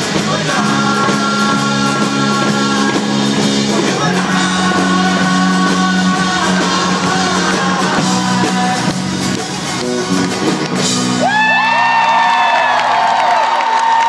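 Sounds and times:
audience cheering and whooping: 0:09.8 - 0:14.0.

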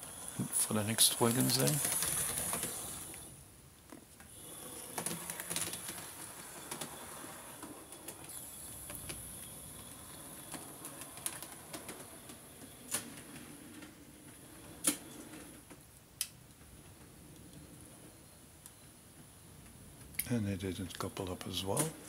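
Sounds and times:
model locomotive whirring: 0:00.0 - 0:03.4, 0:04.3 - 0:15.2
wheels clicking over rail joints: 0:00.4 - 0:03.3, 0:04.3 - 0:15.7.

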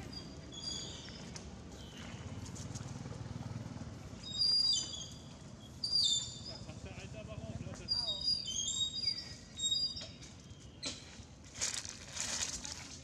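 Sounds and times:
scuffling on dry ground: 0:00.8 - 0:03.2, 0:10.5 - 0:13.0.

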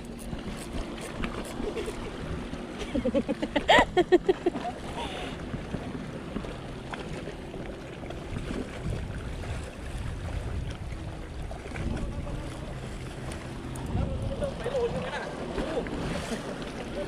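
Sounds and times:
wind on microphone: 0:08.3 - 0:16.4.

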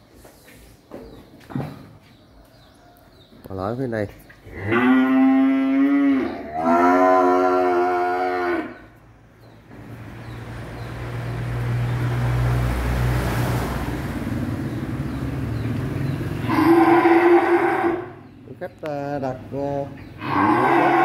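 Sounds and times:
calf mooing: 0:04.5 - 0:08.9, 0:16.4 - 0:18.2, 0:20.2 - 0:21.0.

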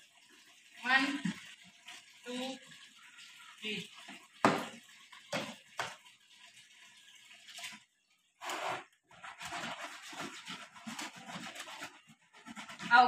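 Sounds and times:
clothes sloshing in water: 0:07.4 - 0:13.0.

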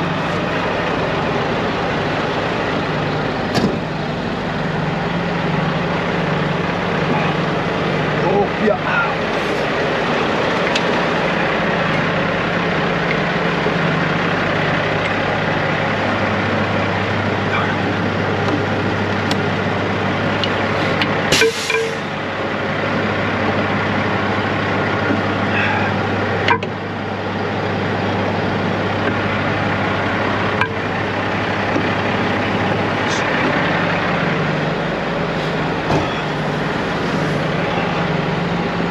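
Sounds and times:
diesel engine idling: 0:00.0 - 0:38.9
air hissing: 0:21.3 - 0:22.0.

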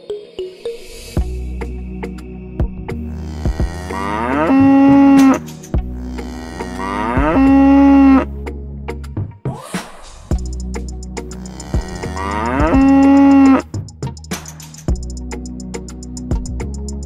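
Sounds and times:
background music: 0:00.0 - 0:17.0
cow mooing: 0:03.1 - 0:08.3, 0:11.4 - 0:13.7.

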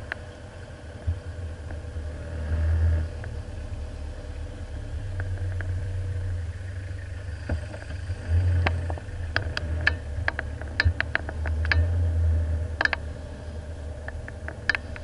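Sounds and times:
low engine rumble: 0:00.0 - 0:15.0
sharp rattling clicks: 0:08.6 - 0:11.9, 0:12.8 - 0:13.0.

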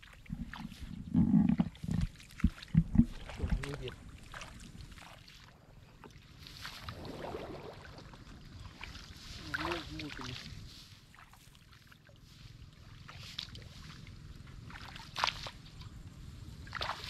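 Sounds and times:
steady low rumble: 0:00.0 - 0:11.2
water splashing and sloshing: 0:00.0 - 0:17.0.

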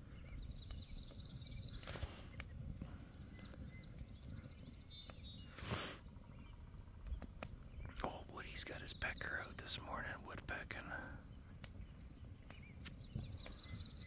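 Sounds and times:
campfire crackling and popping: 0:00.0 - 0:14.0
distant woodpecker drumming: 0:06.2 - 0:14.0.

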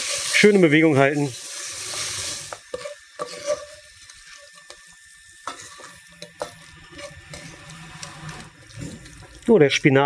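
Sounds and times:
food sizzling in a pot: 0:00.0 - 0:10.0
wooden spoon scraping a pot: 0:01.6 - 0:04.8, 0:05.4 - 0:09.5.

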